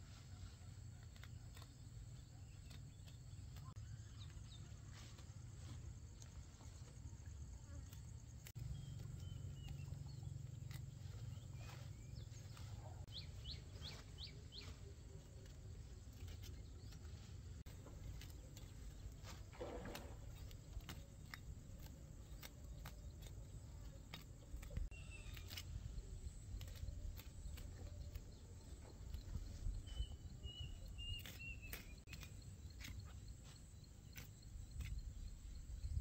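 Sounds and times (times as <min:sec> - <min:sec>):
bird chirps: 0:08.6 - 0:15.4, 0:26.6 - 0:33.1.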